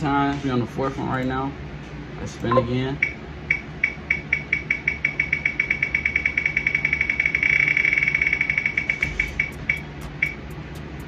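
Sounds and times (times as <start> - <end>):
spinning wheel ticking clicks: 2.4 - 11.0.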